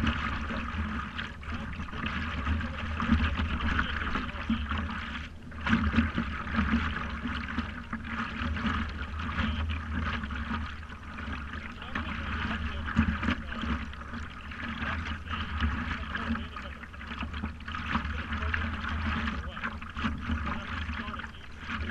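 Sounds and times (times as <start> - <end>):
steady low rumble: 0.0 - 21.9
water lapping and splashing: 0.0 - 21.9.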